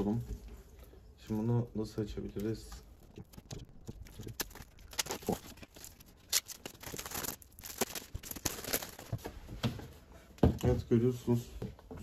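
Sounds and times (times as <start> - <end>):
plastic wrapping crinkling and tearing: 1.2 - 9.3.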